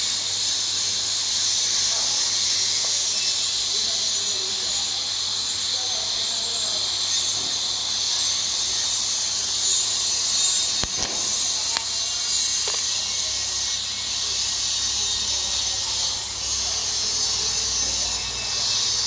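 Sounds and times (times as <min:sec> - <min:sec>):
welding arc hissing: 0:00.0 - 0:19.0
faint clicks: 0:10.6 - 0:12.9.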